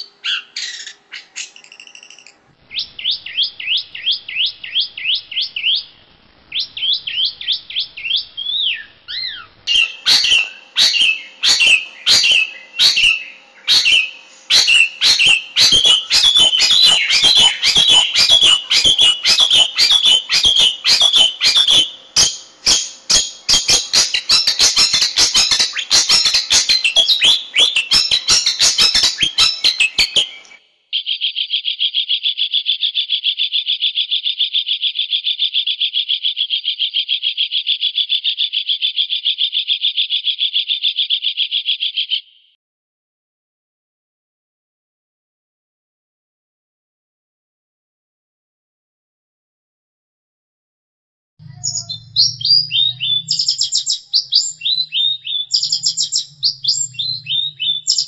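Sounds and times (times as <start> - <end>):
bird whistles: 0.0 - 5.9, 6.5 - 42.3, 51.5 - 58.0
bird chattering: 0.0 - 30.6, 51.4 - 58.0.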